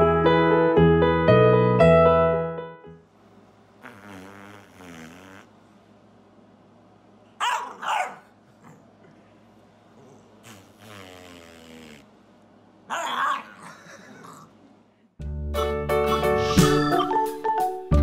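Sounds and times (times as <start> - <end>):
dog barking: 7.4 - 8.8, 12.9 - 13.8
dog growling: 9.9 - 12.1, 12.9 - 14.6.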